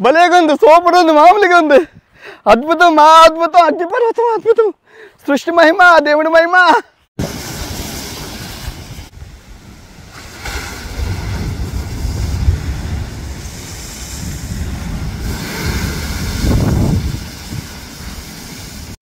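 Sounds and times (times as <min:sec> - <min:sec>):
ocean waves breaking on rocks: 0:07.2 - 0:18.9
wind buffeting microphone: 0:08.0 - 0:19.0.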